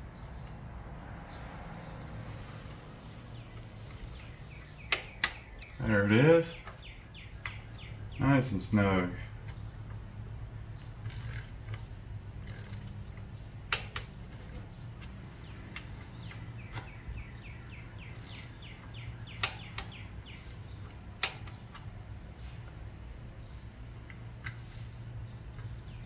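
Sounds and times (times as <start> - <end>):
torque wrench clicking: 3.5 - 5.8, 10.8 - 17.1, 18.0 - 21.9.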